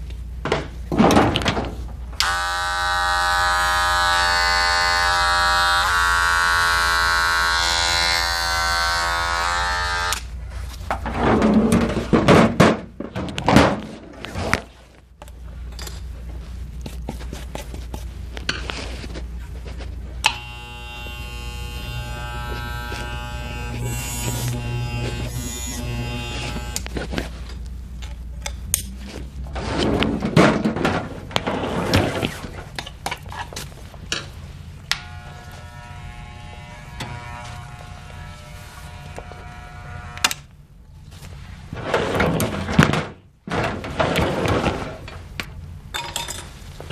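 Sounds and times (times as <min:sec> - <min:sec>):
hair clipper buzzing: 0:02.2 - 0:10.3, 0:20.2 - 0:26.9, 0:34.9 - 0:40.4.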